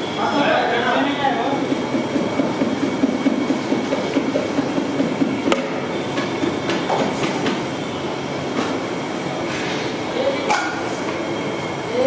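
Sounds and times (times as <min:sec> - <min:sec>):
broth bubbling at a boil: 0:01.5 - 0:08.5.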